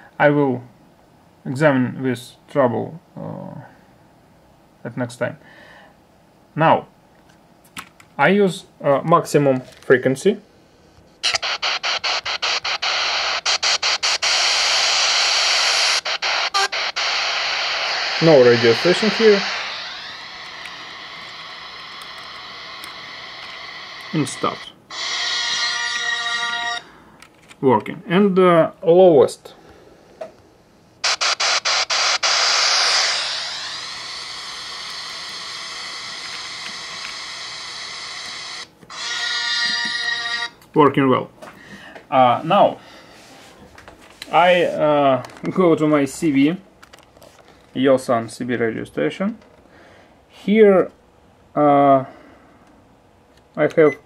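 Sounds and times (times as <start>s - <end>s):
radio static hiss: 11.2s - 26.9s, 31.0s - 39.1s
steady radio tones: 11.2s - 27.0s, 31.0s - 40.4s.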